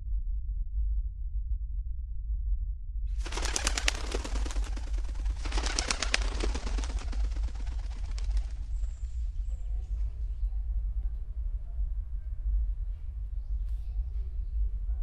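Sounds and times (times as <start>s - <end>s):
steady low hum: 0.0s - 15.0s
pigeons' wings flapping: 3.2s - 9.0s.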